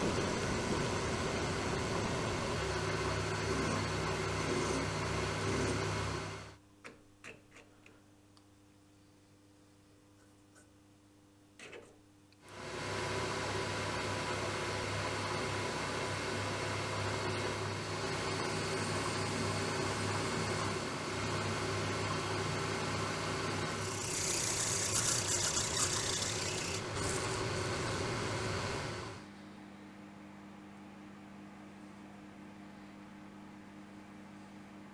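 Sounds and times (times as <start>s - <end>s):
lathe cutting tool cutting metal: 0.0s - 6.5s, 17.2s - 29.2s
metal lathe humming: 0.0s - 6.6s, 12.5s - 29.3s.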